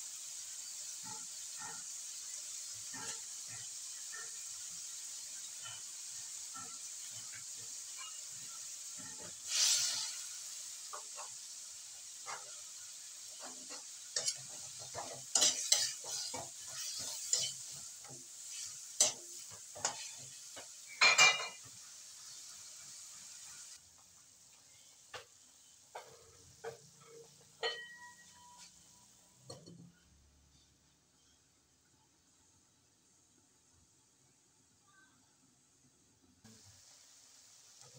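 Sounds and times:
food sizzling in hot oil: 0.0 - 37.9
spatula scraping a wok: 0.2 - 23.8, 25.7 - 31.5.

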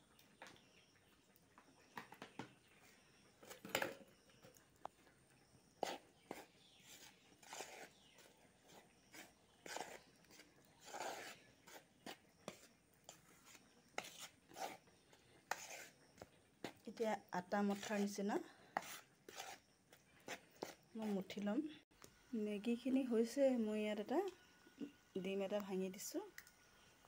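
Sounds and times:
hands mixing flour on a plate: 1.6 - 21.7.

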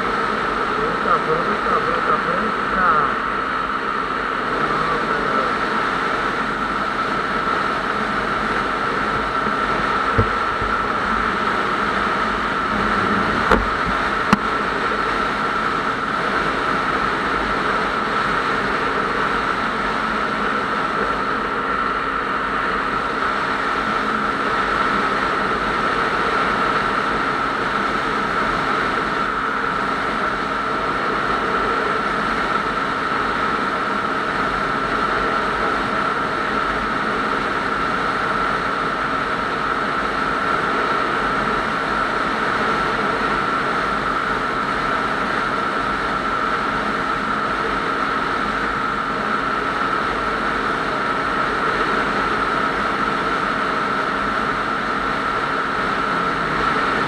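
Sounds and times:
engine and road noise: 0.0 - 57.0
high-pitched whine: 0.0 - 57.0
brief knocks: 10.1 - 10.8.

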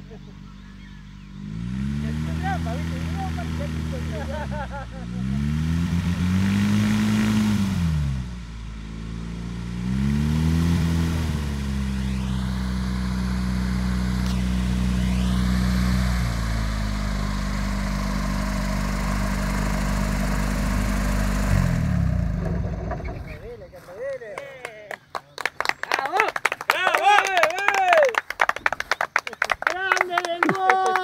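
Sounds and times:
propeller aircraft engine revving: 0.0 - 23.6.

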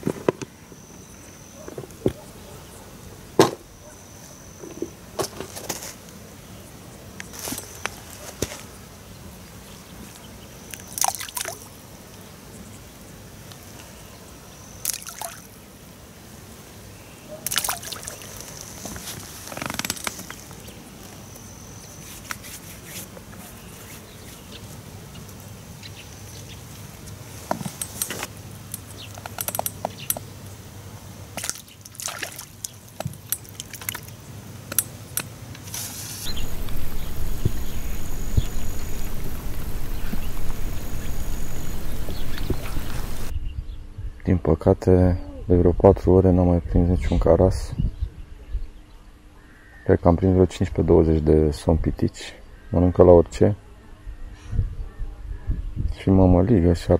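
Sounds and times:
steady rain noise: 5.9 - 22.3, 23.0 - 43.3
raindrops on water: 14.8 - 15.6, 17.4 - 18.6, 31.2 - 35.3, 36.3 - 43.3.

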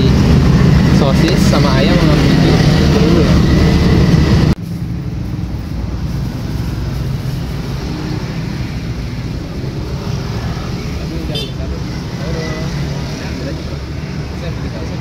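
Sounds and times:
low rumble of road traffic: 0.0 - 15.0.

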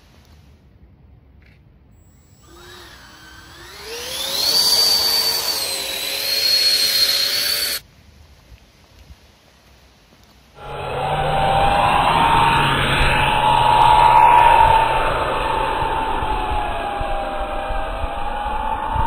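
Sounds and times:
electric ducted fans whining: 2.0 - 7.8, 10.6 - 19.0.

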